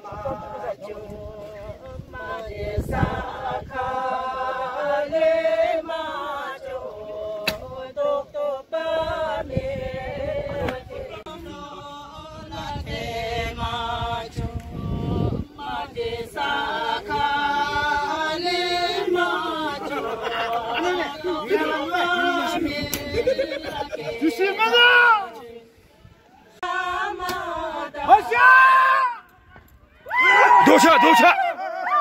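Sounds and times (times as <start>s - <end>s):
women singing in unison: 0.0s - 25.8s, 26.5s - 28.3s.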